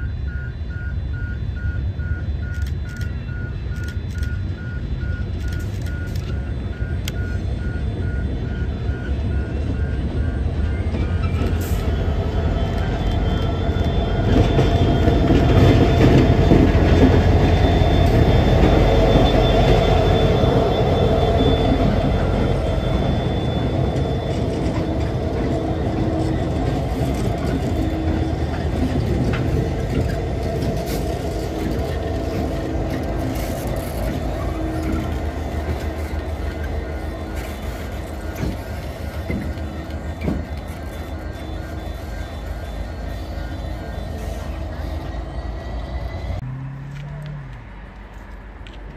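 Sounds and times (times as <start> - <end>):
diesel locomotive engine rumble: 0.0 - 48.9.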